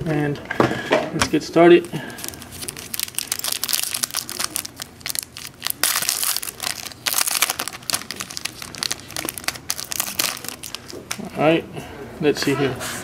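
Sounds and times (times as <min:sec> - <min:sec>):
foil wrapper crinkling and tearing: 0:01.9 - 0:11.3.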